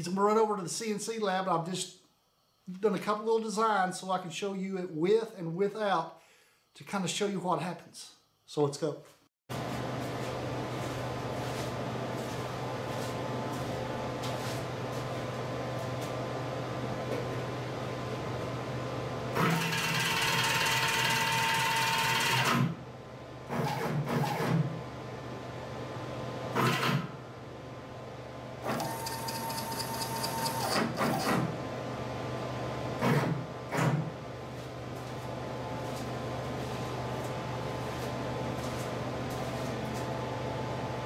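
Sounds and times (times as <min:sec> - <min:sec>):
steady low hum: 0:09.5 - 0:19.4, 0:31.4 - 0:41.0
stepper motors whining: 0:28.6 - 0:31.3.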